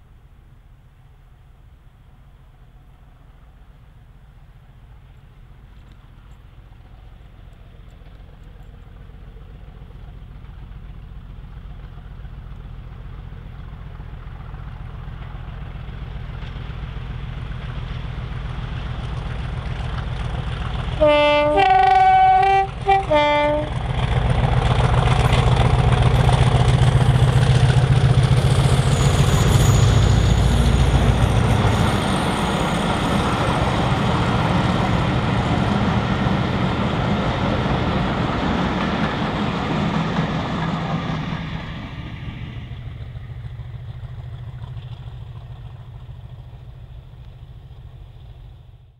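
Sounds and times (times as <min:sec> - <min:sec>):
diesel locomotive engine: 0:00.0 - 0:48.9
train rail noise: 0:00.0 - 0:48.9
two-tone train horn: 0:21.0 - 0:23.9.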